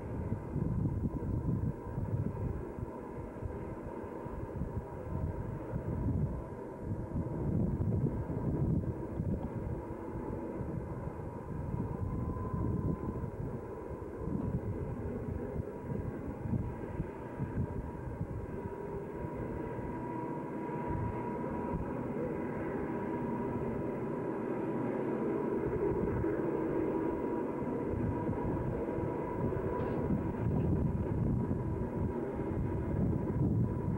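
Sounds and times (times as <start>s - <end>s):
distant diesel locomotives droning: 0.0s - 33.9s
wind buffeting microphone: 0.0s - 33.9s.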